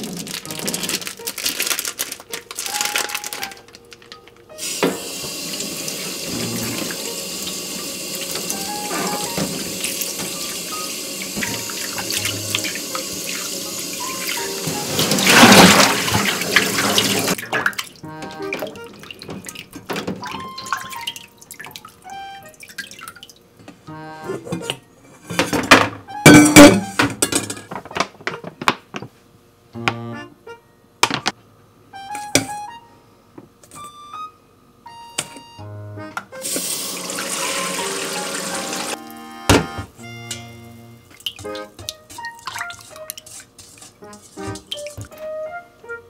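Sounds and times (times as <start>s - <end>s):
plastic wrapping rustling: 0.0s - 4.5s
tap running into metal basin: 4.6s - 17.8s, 36.4s - 39.0s
water splashing: 11.2s - 22.0s, 41.1s - 45.1s.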